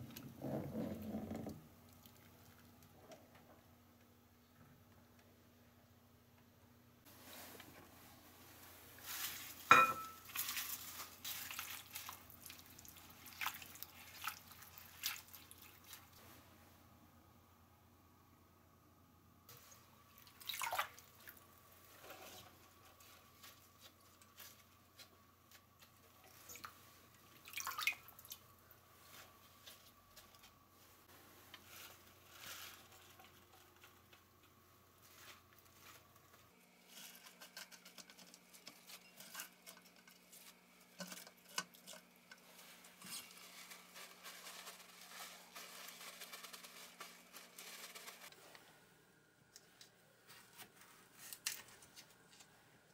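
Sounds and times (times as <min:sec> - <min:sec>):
paper towels rustling: 0:07.1 - 0:16.4, 0:28.8 - 0:34.0, 0:42.4 - 0:48.5
water dripping and splashing: 0:10.3 - 0:16.1, 0:20.2 - 0:21.4, 0:26.3 - 0:28.4.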